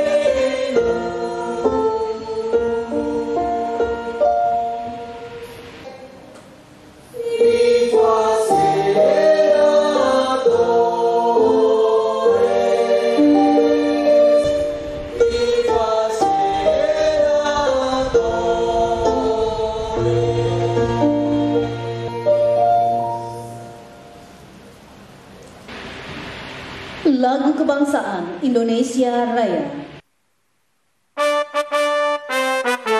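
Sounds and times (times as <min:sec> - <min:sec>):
women's choir singing: 0:00.0 - 0:05.4, 0:07.0 - 0:23.8
steady low note: 0:25.7 - 0:27.2.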